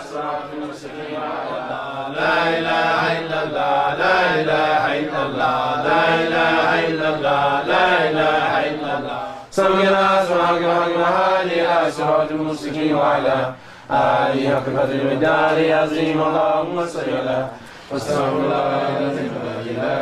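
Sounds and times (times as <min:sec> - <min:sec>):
person chanting: 0:00.0 - 0:20.0.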